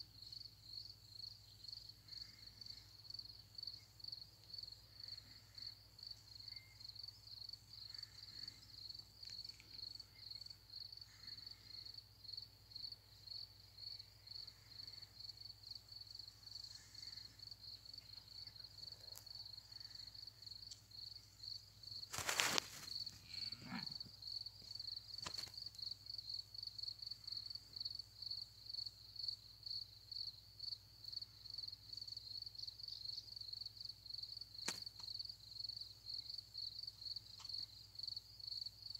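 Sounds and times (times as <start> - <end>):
crickets chirping: 0.0 - 38.9.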